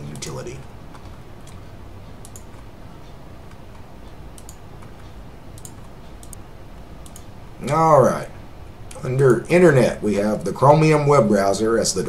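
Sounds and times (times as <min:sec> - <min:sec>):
low room hum: 0:00.0 - 0:12.0
faint mouse clicks: 0:00.1 - 0:06.4, 0:07.0 - 0:07.3.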